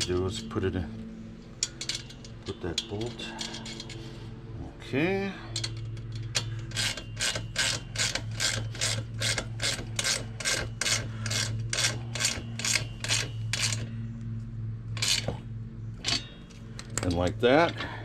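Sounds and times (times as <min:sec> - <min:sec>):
steady low hum: 0:00.0 - 0:18.0
ratchet wrench strokes: 0:05.6 - 0:13.9, 0:15.0 - 0:15.4.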